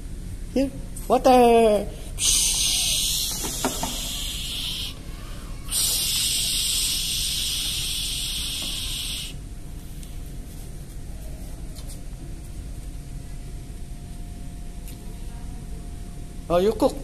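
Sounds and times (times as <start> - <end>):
low room hum: 0.0 - 17.0
toy faucet hissing water: 2.2 - 5.0, 5.7 - 9.4.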